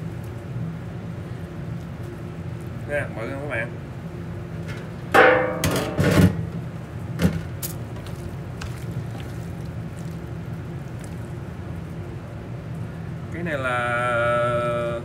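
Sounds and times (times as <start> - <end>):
steady low hum: 0.0 - 15.0
metallic clatter: 4.7 - 6.4
steel pans clanking and scraping: 4.7 - 6.5
hands tossing food in a pan: 7.6 - 11.9.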